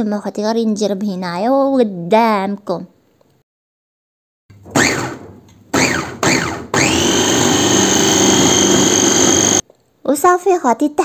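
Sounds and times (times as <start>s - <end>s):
food chopper motor whining: 4.6s - 9.6s.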